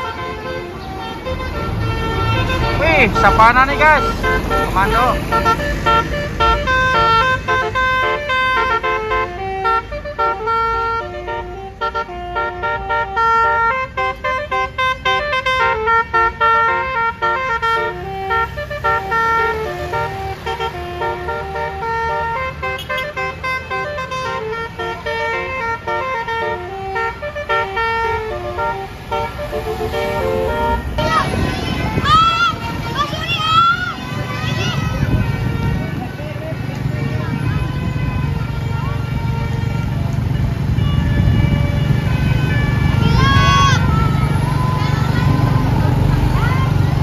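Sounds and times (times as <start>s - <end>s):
bus horn melody: 0.0s - 47.0s
traffic: 0.0s - 47.0s.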